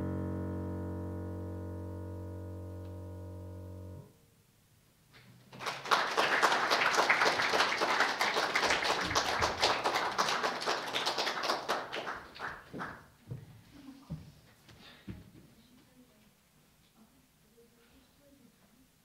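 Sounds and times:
audience clapping: 5.5 - 13.2.

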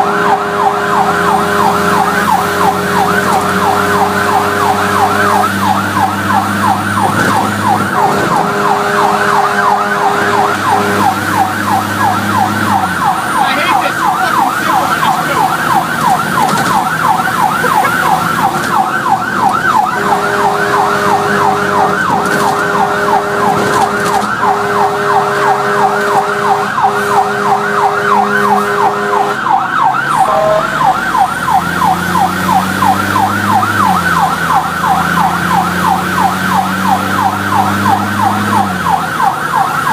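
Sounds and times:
low steady horn blasts: 0.0 - 16.0, 19.7 - 33.9
fire truck siren yelping: 0.0 - 39.9.

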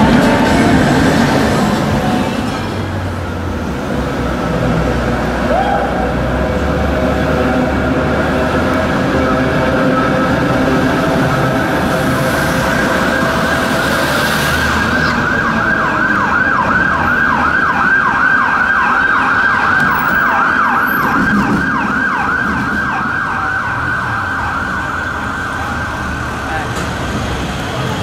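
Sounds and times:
street traffic and trams rumble: 0.0 - 28.0
emergency siren yelping: 7.5 - 26.5.

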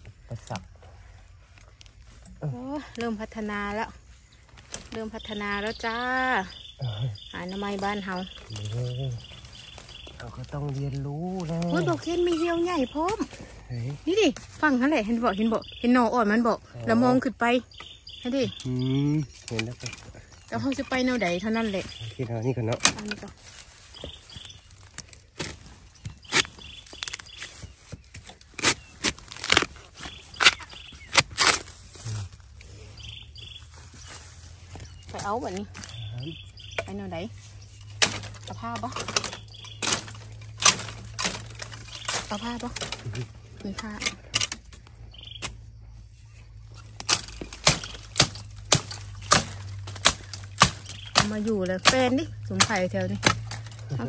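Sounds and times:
leaf litter crunching underfoot: 0.0 - 15.8, 17.8 - 54.0
machete chopping bamboo: 24.8 - 31.9, 37.9 - 43.2, 47.0 - 54.0.

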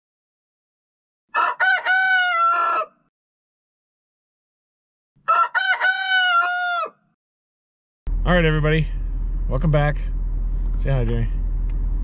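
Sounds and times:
rooster crowing: 1.3 - 3.1, 5.2 - 7.2.

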